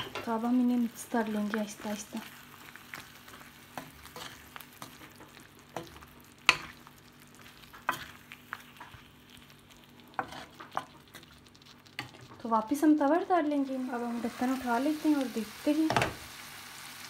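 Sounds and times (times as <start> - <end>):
chicken sizzling in oil: 0.3 - 17.0
wooden spatula scraping pan: 10.2 - 10.9.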